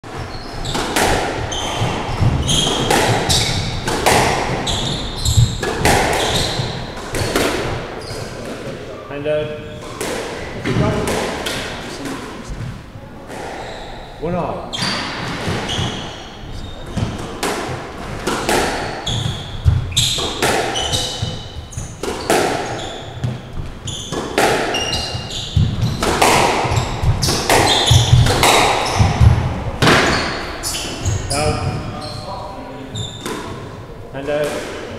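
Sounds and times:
shoes squeaking on wooden floor: 0.0 - 8.8, 9.5 - 33.8
racquet striking ball: 0.1 - 8.8, 9.5 - 13.7, 14.8 - 32.0, 33.0 - 34.9
ball hitting walls: 0.6 - 8.6, 16.9 - 31.8.

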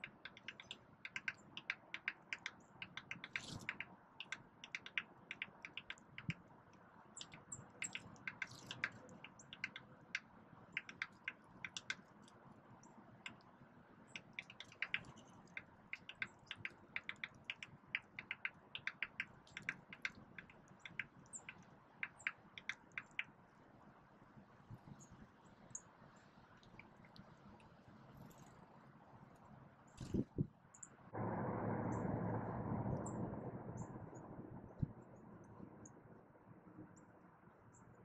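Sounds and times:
birds pecking clicks: 0.0 - 23.4, 26.6 - 28.6.

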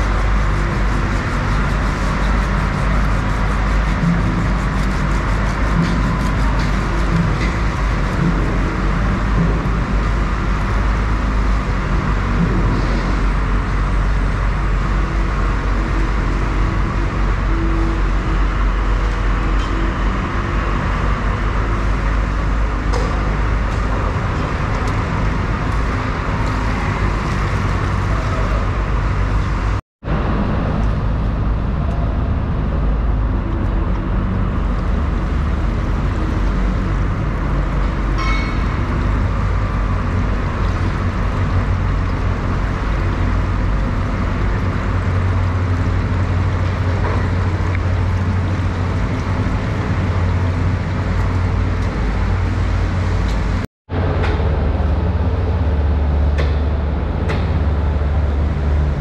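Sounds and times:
steady rumbling background noise: 0.0 - 59.0.

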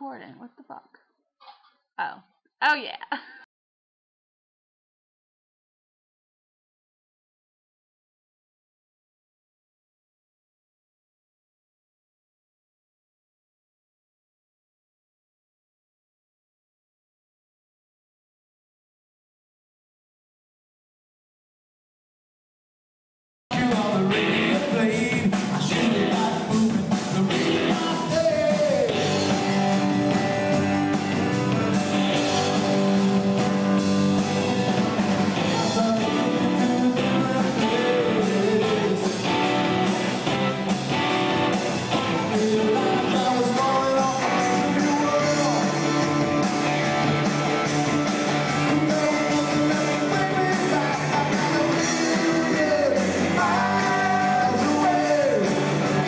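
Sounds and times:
person singing: 23.5 - 29.7, 35.4 - 39.8, 42.0 - 46.2, 48.3 - 56.0
drum kit: 23.5 - 56.0
electric guitars: 23.5 - 56.0.

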